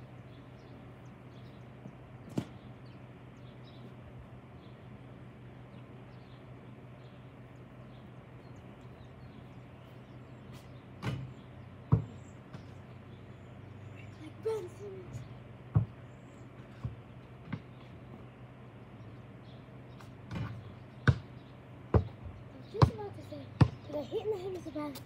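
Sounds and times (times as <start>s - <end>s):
low steady hum: 0.0s - 25.0s
basketball bouncing on hard ground: 1.8s - 2.7s, 10.5s - 12.9s, 15.6s - 16.0s, 16.7s - 18.3s, 20.0s - 23.9s.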